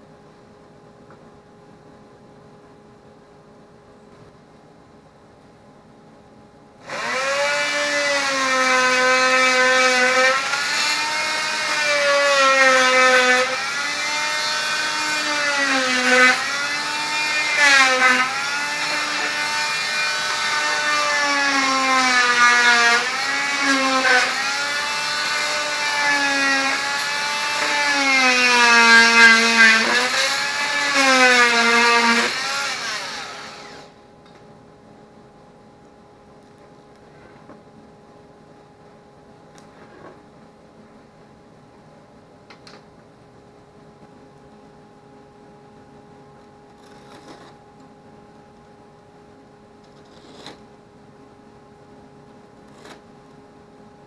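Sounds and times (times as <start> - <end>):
power tool cutting wood: 6.8 - 34.0.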